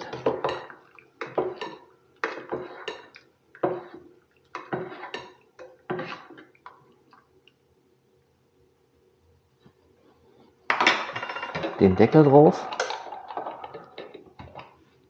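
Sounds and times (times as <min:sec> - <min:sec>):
spoon stirring in metal thermos: 0:11.6 - 0:14.6.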